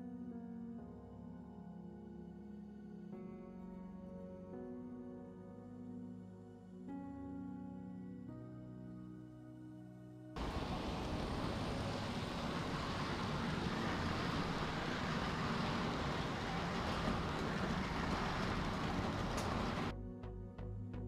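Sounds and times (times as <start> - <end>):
model train rolling on track: 10.4 - 19.9.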